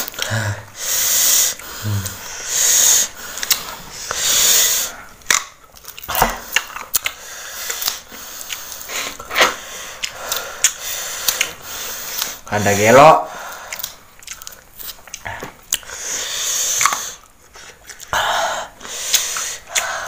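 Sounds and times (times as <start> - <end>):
hissing breaths through mouth: 0.6 - 5.1
crunching and chewing: 3.2 - 4.2, 5.2 - 12.4, 13.5 - 16.0, 16.6 - 18.2.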